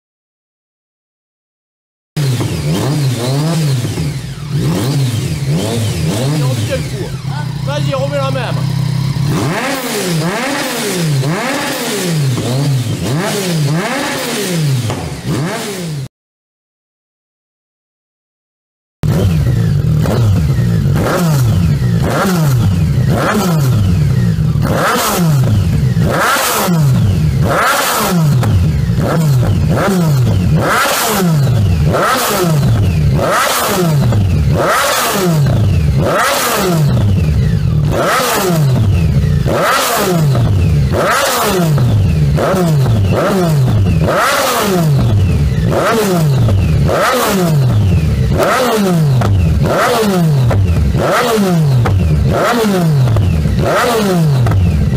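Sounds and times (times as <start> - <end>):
motorcycle engine throttle blips: 19.0 - 54.9.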